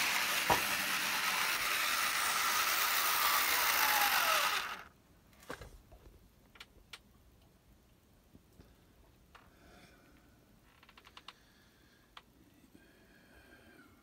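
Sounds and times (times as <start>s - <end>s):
model train motor whirring: 0.0s - 4.9s.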